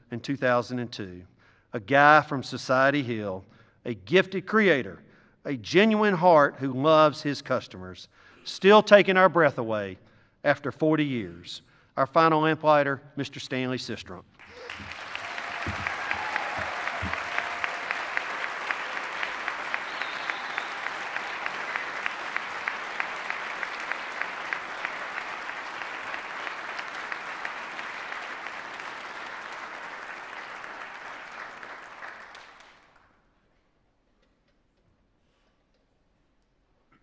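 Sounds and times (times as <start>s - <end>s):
audience applauding: 14.4s - 33.0s.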